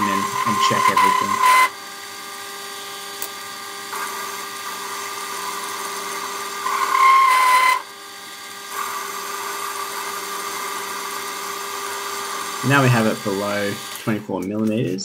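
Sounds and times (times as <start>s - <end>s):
high-pitched lathe chatter squeal: 0.0s - 1.8s, 6.6s - 7.9s
lathe cutting metal: 0.0s - 15.0s.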